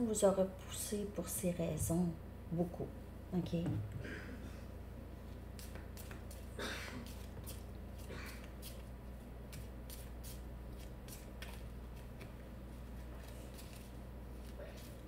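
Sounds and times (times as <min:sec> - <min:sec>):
cards being shuffled: 0:05.6 - 0:08.9, 0:09.5 - 0:15.0.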